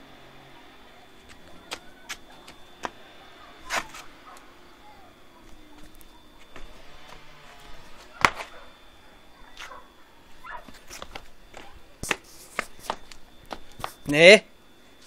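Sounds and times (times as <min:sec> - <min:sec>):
dog whining: 0:00.9 - 0:05.8, 0:08.1 - 0:10.8.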